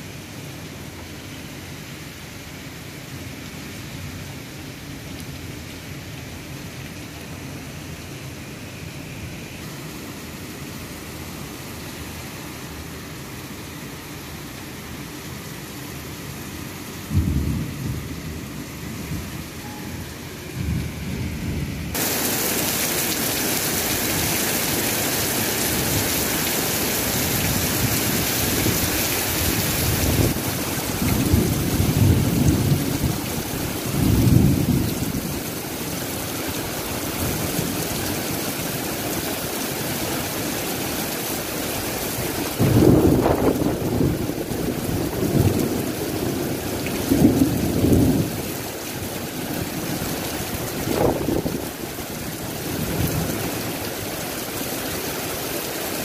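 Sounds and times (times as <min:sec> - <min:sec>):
heavy rain hiss: 0:00.0 - 0:56.0
thunder rumbling: 0:17.1 - 0:23.3, 0:27.5 - 0:35.4, 0:42.6 - 0:48.4, 0:50.6 - 0:51.8.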